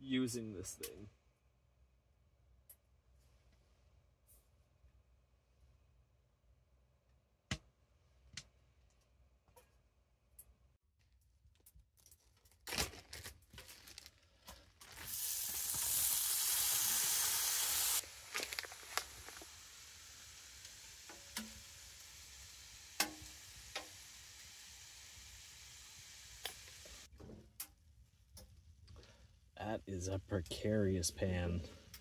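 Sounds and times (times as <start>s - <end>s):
food sizzling in a pan: 15.0s - 27.1s.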